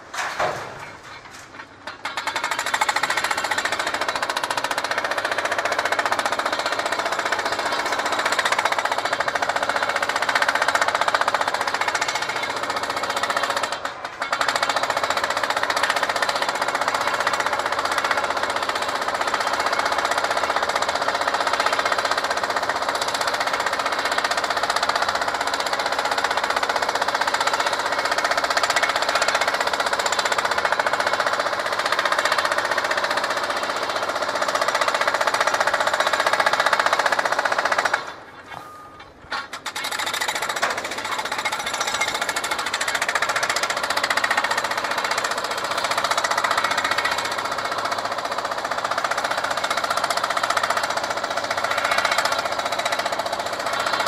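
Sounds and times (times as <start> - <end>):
jackhammer pounding concrete: 1.8 - 38.4, 39.3 - 54.0.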